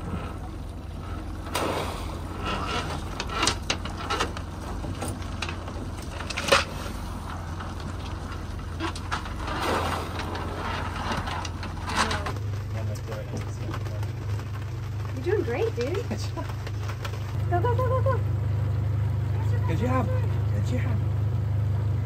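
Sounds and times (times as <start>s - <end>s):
outboard motor idling: 0.0s - 22.0s
trap splashing into water: 1.5s - 2.2s.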